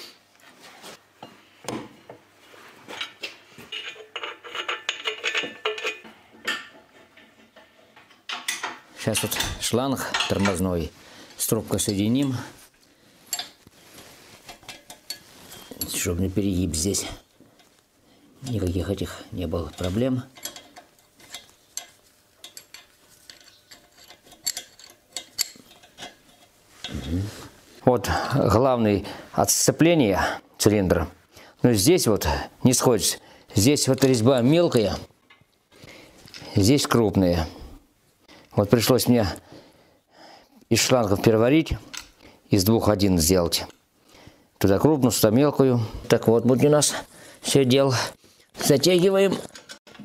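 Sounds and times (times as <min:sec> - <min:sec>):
metal parts clinking and scraping: 0:02.9 - 0:12.5, 0:13.2 - 0:27.3, 0:48.6 - 0:50.0.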